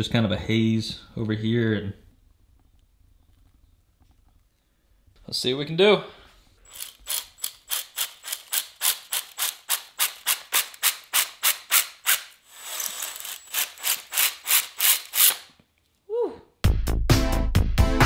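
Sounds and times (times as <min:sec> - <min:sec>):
drill-spun hone rasping in cylinder: 0:06.6 - 0:15.5.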